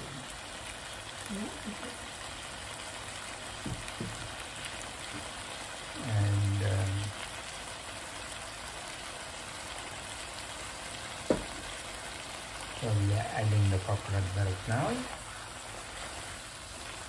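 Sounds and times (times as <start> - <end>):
curry sizzling in a pan: 0.0 - 17.0
sharp knock: 11.3 - 11.5.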